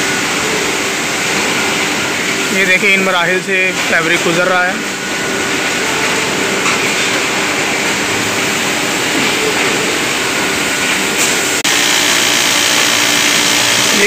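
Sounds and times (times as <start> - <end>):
sheet machine running: 9.7 - 14.0.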